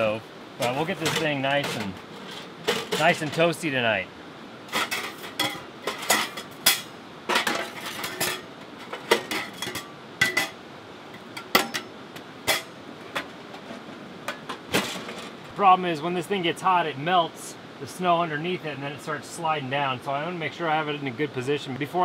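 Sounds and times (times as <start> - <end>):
metal stove parts clanking: 0.6 - 3.6, 4.7 - 15.4.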